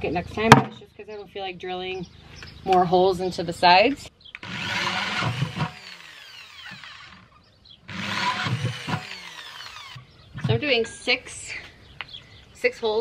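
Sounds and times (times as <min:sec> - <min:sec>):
electric drill whining: 0:04.4 - 0:10.0.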